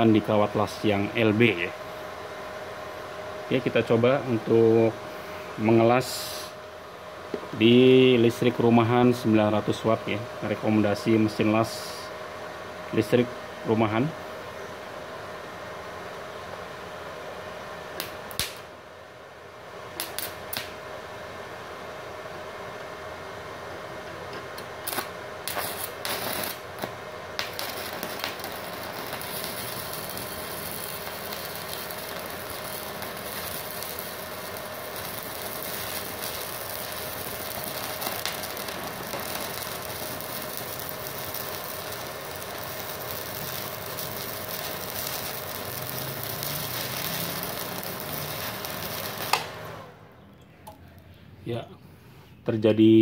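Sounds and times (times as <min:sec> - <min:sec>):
welding arc crackling sizzle: 0:00.0 - 0:02.0, 0:03.5 - 0:06.6, 0:17.6 - 0:21.1, 0:24.3 - 0:50.1
welding arc cracks: 0:18.0 - 0:18.7, 0:19.9 - 0:20.8, 0:24.6 - 0:49.9.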